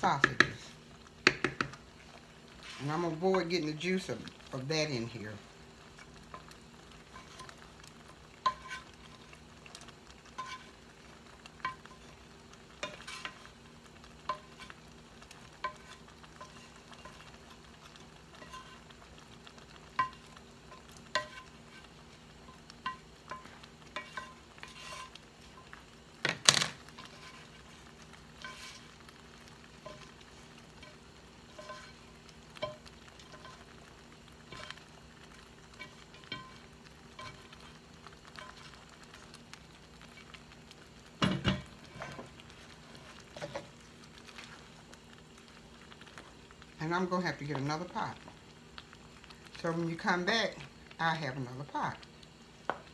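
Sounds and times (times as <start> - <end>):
wooden spatula knocking on skillet: 0.0 - 0.6, 1.2 - 1.8, 41.2 - 42.3, 52.7 - 52.9.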